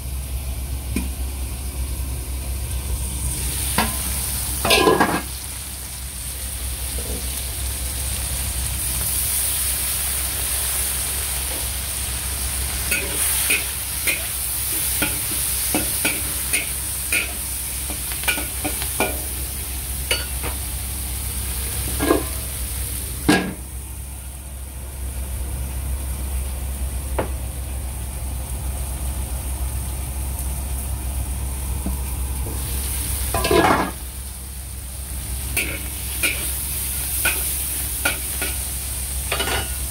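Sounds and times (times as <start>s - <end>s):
shrimp sizzling in oil: 0.0s - 39.9s
spatula scraping wok: 12.6s - 19.4s, 35.4s - 39.9s.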